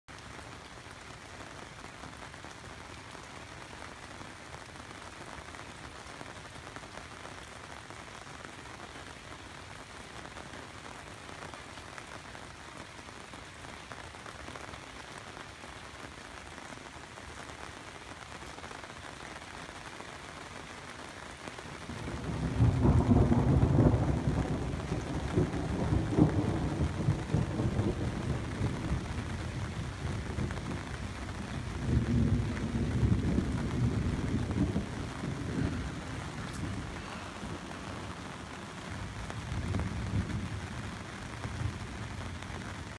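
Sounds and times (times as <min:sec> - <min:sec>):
steady rain falling: 0:00.0 - 0:42.9
deep rumble of thunder: 0:21.9 - 0:42.8.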